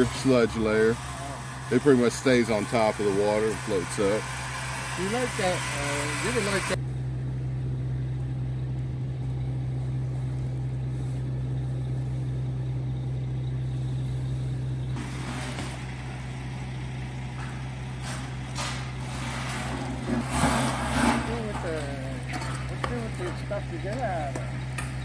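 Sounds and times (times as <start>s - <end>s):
hiss bursts: 0.0s - 6.8s
truck engine and vacuum pump drone: 0.0s - 25.0s.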